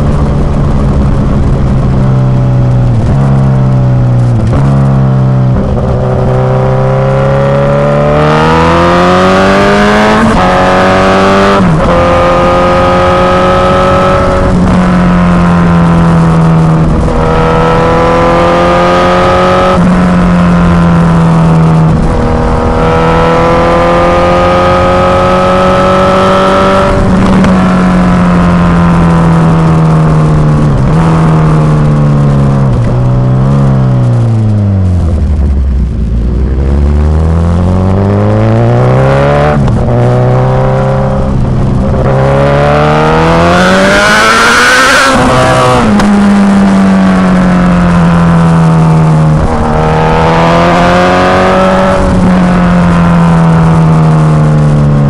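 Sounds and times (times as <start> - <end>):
motorcycle engine revving through gears: 0.0 - 55.0.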